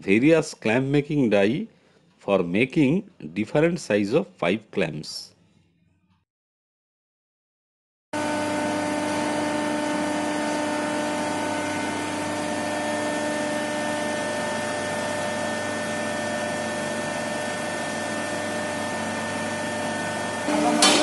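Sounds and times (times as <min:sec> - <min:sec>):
hydraulic machine humming: 0:08.2 - 0:21.0.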